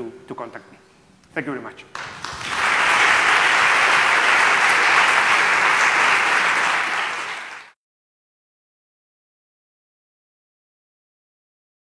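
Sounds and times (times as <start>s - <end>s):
audience applauding: 1.9s - 7.8s.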